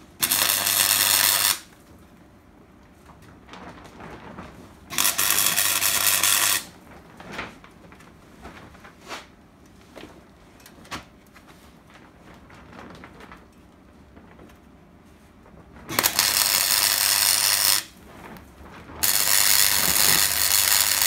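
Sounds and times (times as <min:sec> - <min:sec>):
welder crackling buzz: 0:00.0 - 0:01.7, 0:04.9 - 0:06.8, 0:15.9 - 0:18.0, 0:19.0 - 0:21.0.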